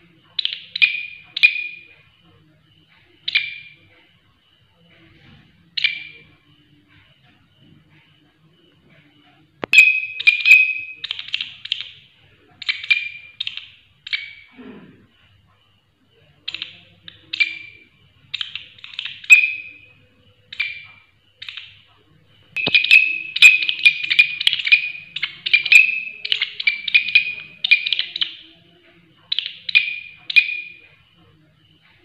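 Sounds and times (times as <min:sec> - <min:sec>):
katydid rasping chirps: 0:22.6 - 0:28.6, 0:29.3 - 0:30.8.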